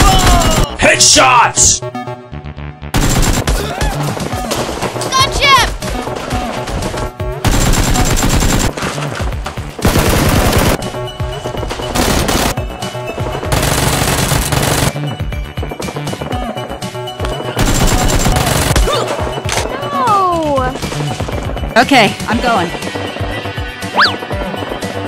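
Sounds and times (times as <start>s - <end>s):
background music: 0.0s - 25.0s
rapid automatic gunfire: 3.0s - 3.7s, 6.6s - 8.9s, 9.8s - 10.8s, 12.0s - 12.6s, 13.5s - 14.9s, 17.6s - 18.9s.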